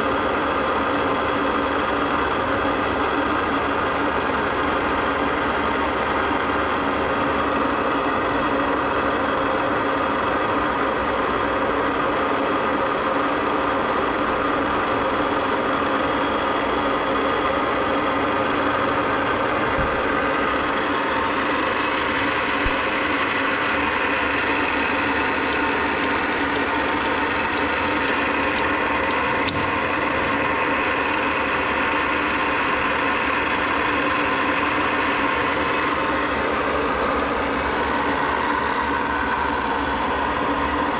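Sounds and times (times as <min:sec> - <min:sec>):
milling machine humming: 0:19.8 - 0:36.0
light ticks: 0:25.5 - 0:29.3.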